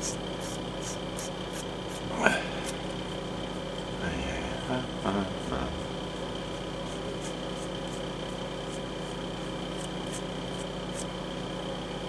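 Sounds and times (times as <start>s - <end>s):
sanding stick scratching: 0.0s - 2.0s, 5.3s - 11.1s
electrical hum: 0.0s - 12.0s.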